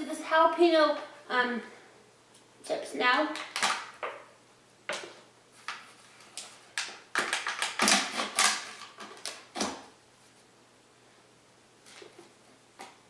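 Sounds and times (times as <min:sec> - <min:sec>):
foil seal ripping: 0:07.1 - 0:09.8.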